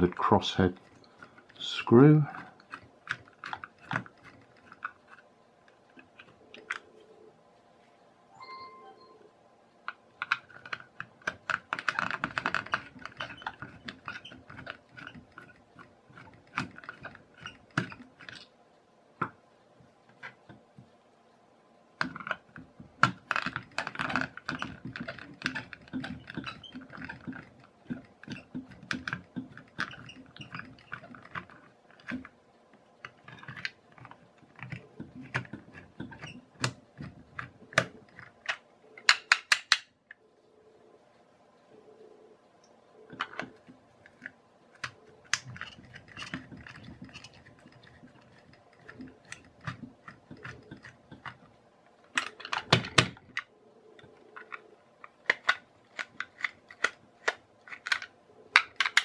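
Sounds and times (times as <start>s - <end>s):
screwdriver clicking in plastic: 2.3s - 5.2s, 9.9s - 18.5s, 22.0s - 32.3s, 43.1s - 51.4s, 52.1s - 53.5s, 54.4s - 59.0s.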